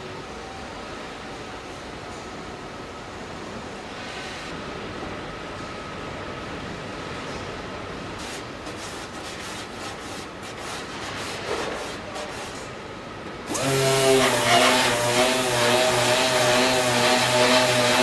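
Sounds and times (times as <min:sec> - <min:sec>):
factory hum: 0:00.0 - 0:18.0
disc sander on metal: 0:13.5 - 0:18.0.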